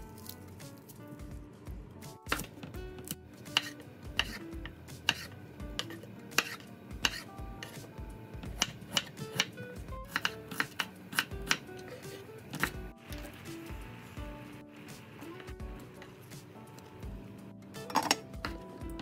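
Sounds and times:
soft background music: 0.0 - 19.0
knife chopping on wooden board: 2.3 - 4.4, 5.0 - 12.8.

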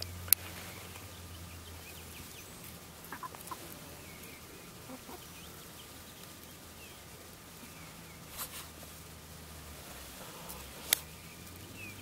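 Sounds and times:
chickens clucking softly: 2.2 - 6.4.

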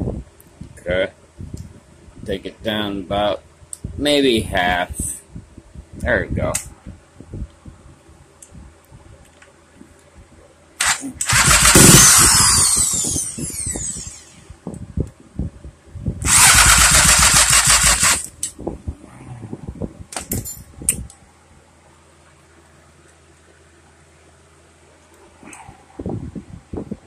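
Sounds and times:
two-stroke engine revving and dying: 10.8 - 14.5, 16.2 - 18.5.

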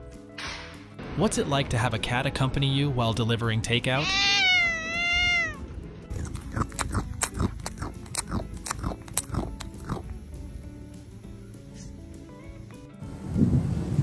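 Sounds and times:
cat meowing: 4.0 - 5.6.

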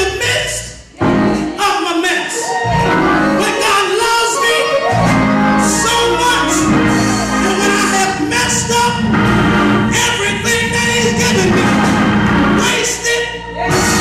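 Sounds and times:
instrumental backing: 0.0 - 14.0
man singing gospel: 0.0 - 14.0.

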